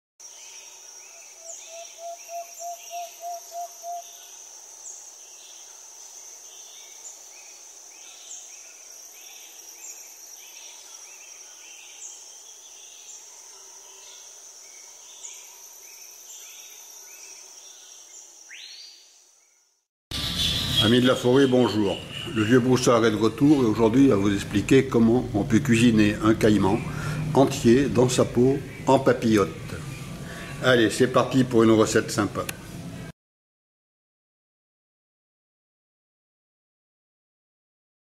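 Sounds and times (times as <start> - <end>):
high insect drone: 0.2 - 19.5, 20.2 - 31.8
bird chirps: 1.1 - 4.3, 18.5 - 23.9
rising bird call: 1.4 - 4.2.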